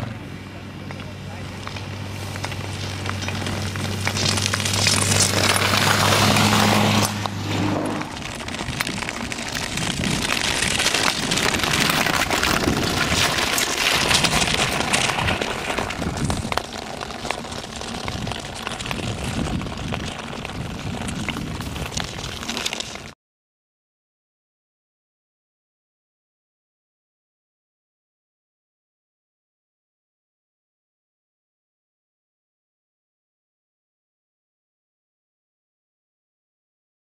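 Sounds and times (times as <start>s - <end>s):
skate blades scraping ice: 1.0s - 23.2s.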